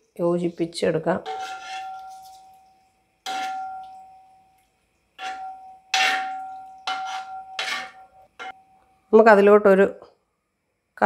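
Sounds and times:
metal spoon clanking on pot: 1.2s - 2.5s, 3.3s - 4.2s, 5.2s - 8.6s
thick curry being stirred: 1.2s - 8.6s.

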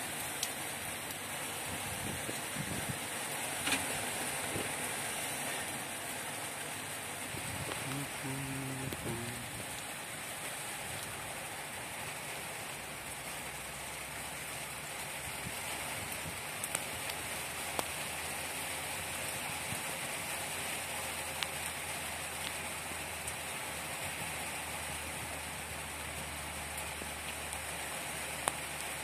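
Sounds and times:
rain on metal mesh: 0.0s - 29.0s.

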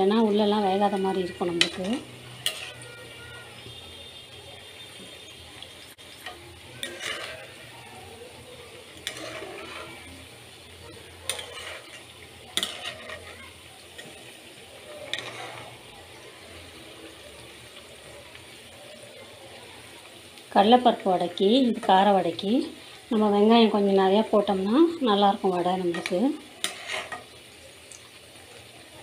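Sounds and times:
food sizzling in hot oil: 0.0s - 29.0s
metal ladle scraping pan: 0.6s - 3.8s, 6.0s - 8.0s, 8.8s - 16.5s, 25.6s - 27.4s.

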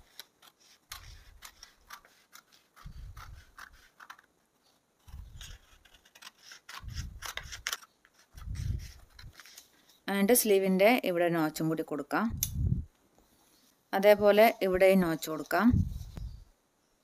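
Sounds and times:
scissors cutting fabric: 0.0s - 4.3s, 5.1s - 7.8s.

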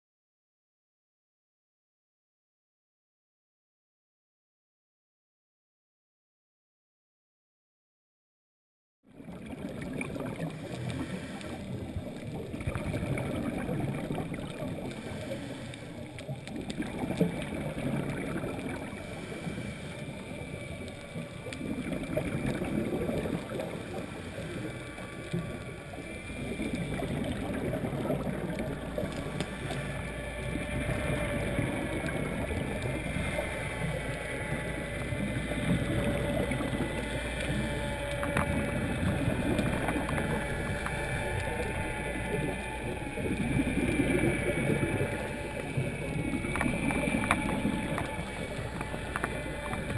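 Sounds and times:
muffled rush of water: 9.1s - 49.9s
regulator breathing and bubbles: 9.1s - 49.9s
faint steady whine: 9.2s - 49.9s.

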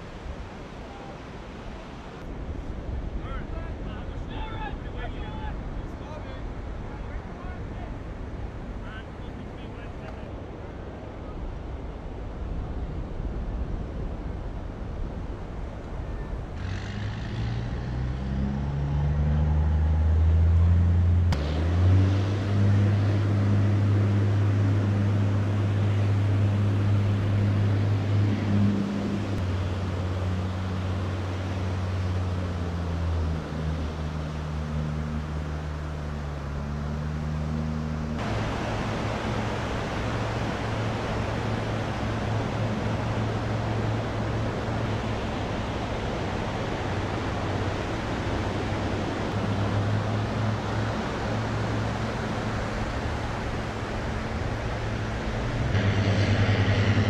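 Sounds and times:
surf: 0.0s - 57.0s
heavy engines droning: 15.8s - 57.0s.

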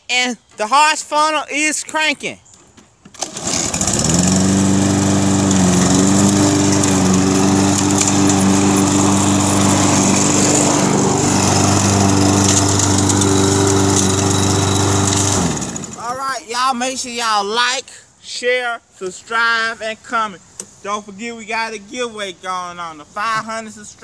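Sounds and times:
lawn mower engine starting and running: 3.1s - 16.4s.

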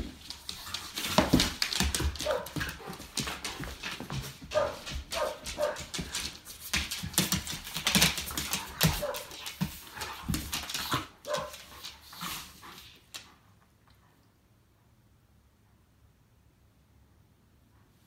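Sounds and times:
claws clicking on wooden floor: 0.0s - 12.4s
scuffling: 0.0s - 12.5s.

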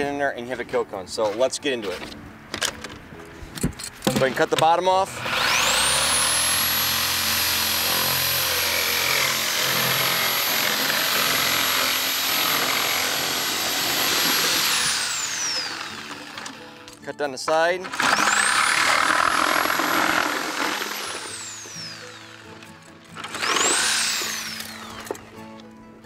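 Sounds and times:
reciprocating saw cutting plastic: 5.0s - 16.7s, 17.8s - 22.5s, 23.2s - 25.3s.

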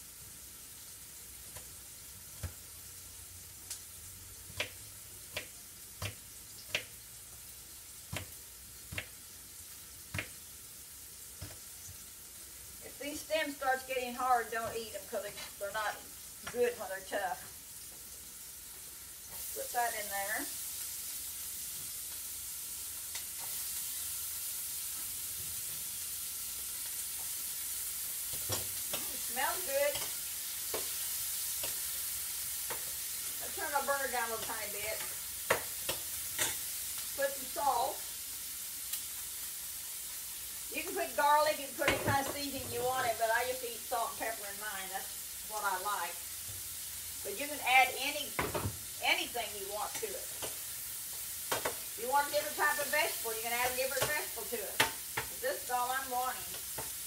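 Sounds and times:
vegetables sizzling in skillet: 0.0s - 57.0s
knife chopping on cutting board: 4.5s - 6.9s, 8.1s - 9.2s.

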